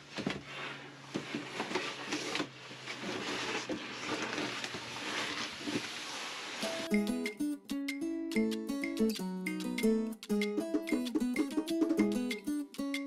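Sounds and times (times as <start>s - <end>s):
cardboard rustling and scraping: 0.0s - 6.6s.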